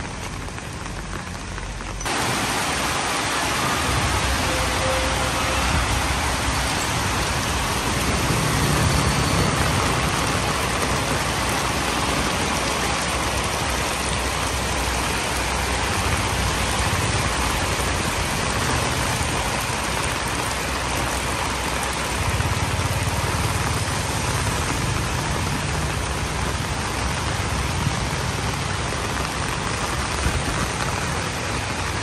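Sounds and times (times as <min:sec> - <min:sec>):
heavy rain on a wet road: 0:00.0 - 0:32.0
motorbikes passing through water: 0:02.0 - 0:32.0.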